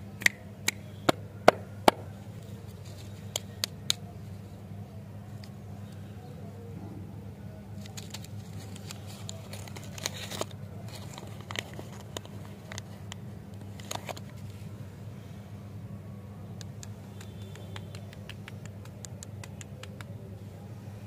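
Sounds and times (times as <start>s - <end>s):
steady low hum: 0.0s - 21.0s
wrapper crinkling: 7.8s - 14.6s.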